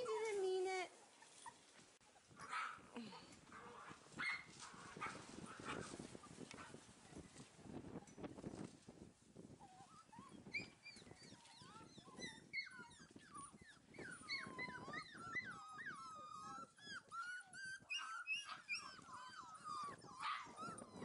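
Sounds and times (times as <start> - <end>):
puppies whimpering and whining: 9.6 - 21.0.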